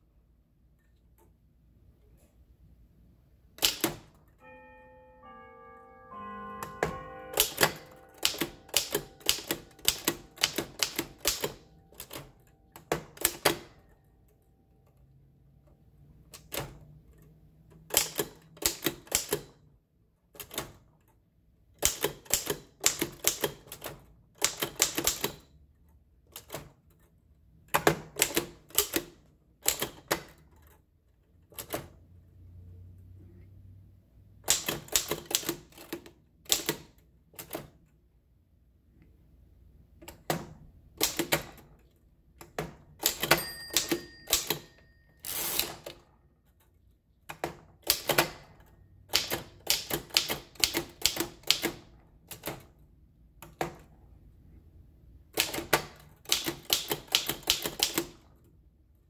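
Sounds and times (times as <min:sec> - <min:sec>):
typewriter clacking: 0:06.6 - 0:13.8, 0:21.8 - 0:25.5, 0:34.4 - 0:37.7, 0:42.4 - 0:46.0, 0:47.3 - 0:52.6, 0:55.4 - 0:58.2.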